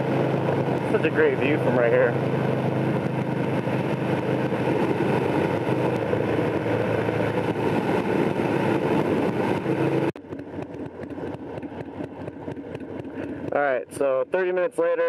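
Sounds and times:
wind buffeting microphone: 0:00.0 - 0:13.6
motorcycle engine cruising: 0:00.0 - 0:14.7.

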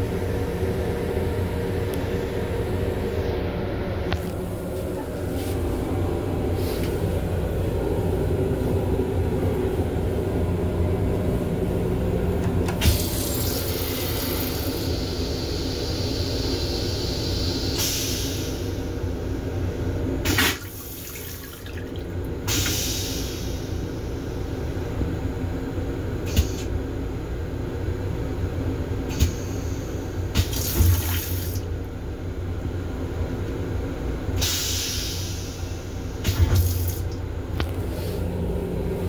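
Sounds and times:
moving train rumble: 0:00.0 - 0:39.0
toilet water whoosh: 0:20.3 - 0:22.2, 0:30.4 - 0:31.6.

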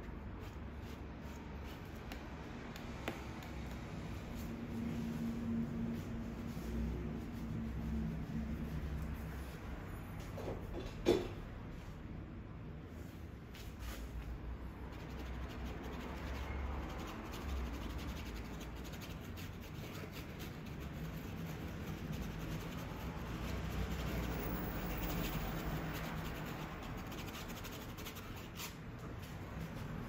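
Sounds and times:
paintbrush strokes on canvas: 0:03.5 - 0:09.8.

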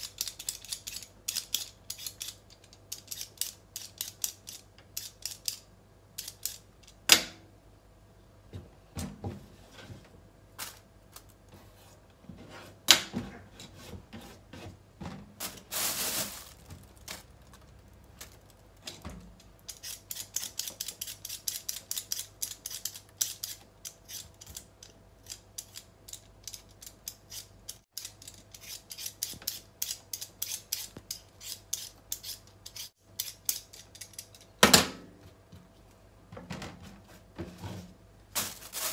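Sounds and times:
peeler scraping potato: 0:00.0 - 0:05.6, 0:19.7 - 0:34.5.

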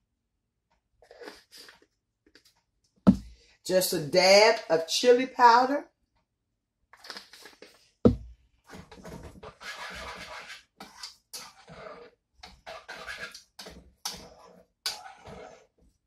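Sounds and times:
wire whisk scraping a saucepan: 0:09.4 - 0:15.8.

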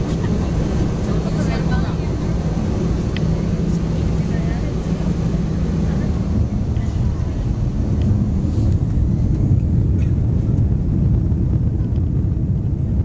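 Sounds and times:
aircraft cabin engine rumble: 0:00.0 - 0:13.0.

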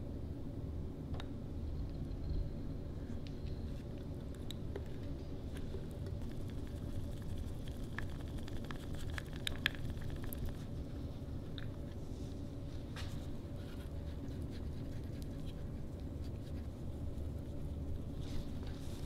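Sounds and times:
steady low hum: 0:00.0 - 0:19.0
faint brushing and handling: 0:11.9 - 0:19.0.

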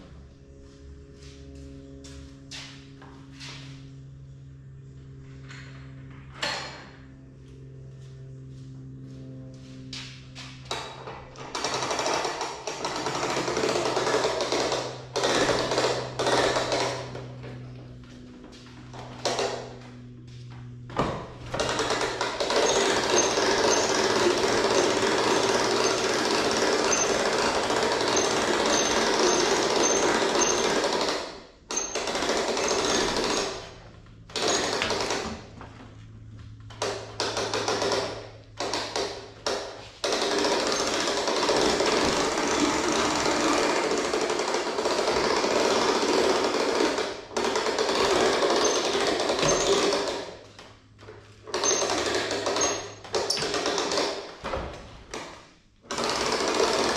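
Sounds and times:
low motor hum: 0:00.0 - 0:56.9
electric camper jacks rattling: 0:10.6 - 0:17.7, 0:20.8 - 0:35.8, 0:36.7 - 0:56.9.

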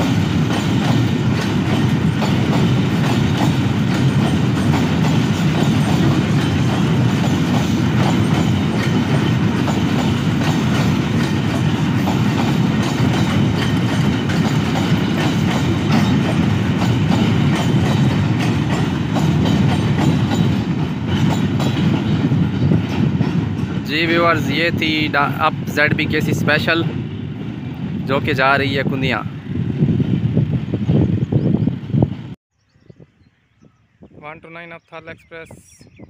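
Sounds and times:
train wheels clicking over rail joints: 0:00.0 - 0:25.4.

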